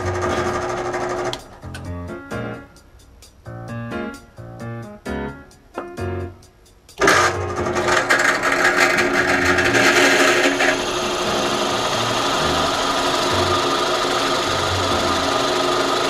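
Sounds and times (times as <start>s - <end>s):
drill bit boring into wood: 0.0s - 1.4s, 7.0s - 16.0s
drill press motor: 0.0s - 1.4s, 7.0s - 16.0s.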